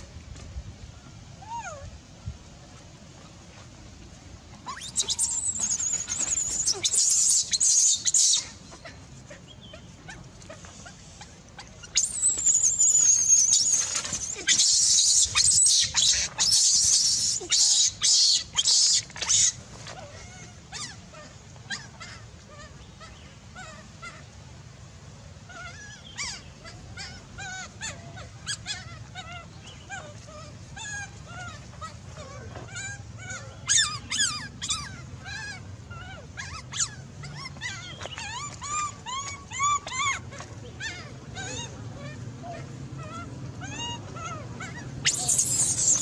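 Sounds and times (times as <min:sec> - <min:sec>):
baby monkeys crying: 0:04.7 - 0:09.0, 0:11.9 - 0:19.6, 0:25.5 - 0:46.0.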